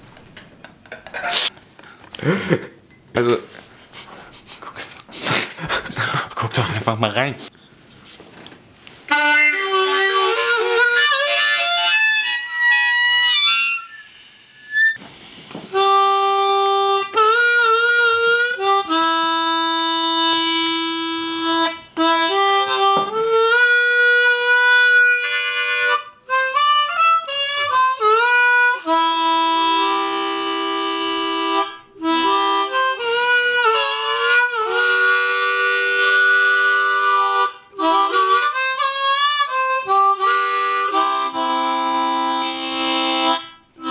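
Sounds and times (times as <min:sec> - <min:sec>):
harmonica playing solo: 0:09.1 - 0:15.0, 0:15.7 - 0:43.9.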